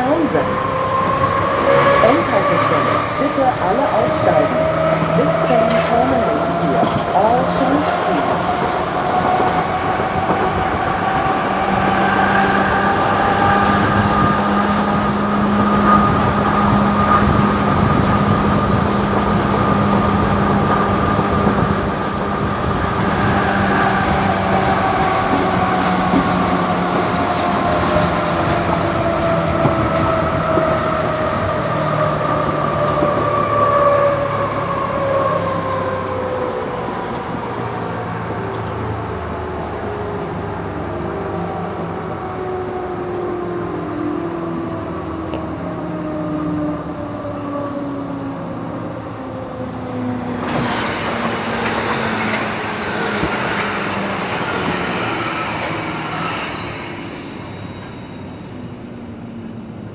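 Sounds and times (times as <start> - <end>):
train traction drive whining: 0.0 - 40.5, 44.2 - 59.9
rail noise: 0.0 - 59.9.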